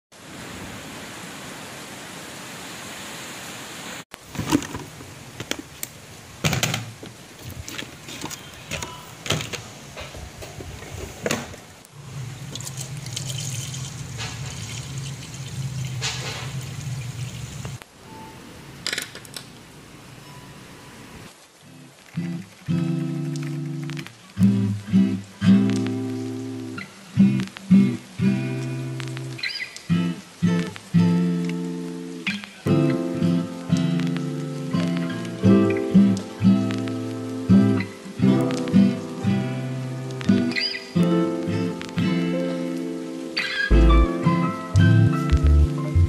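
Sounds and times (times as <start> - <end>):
rain on a window pane: 0.2 - 46.0
art supplies rattling and clicking: 4.3 - 5.7.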